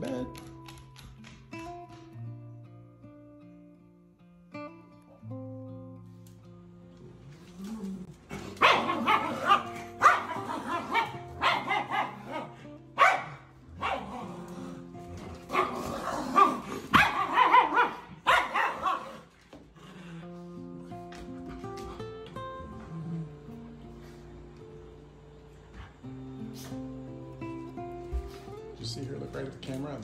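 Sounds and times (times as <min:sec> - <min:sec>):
dogs barking and growling: 0:06.9 - 0:28.6.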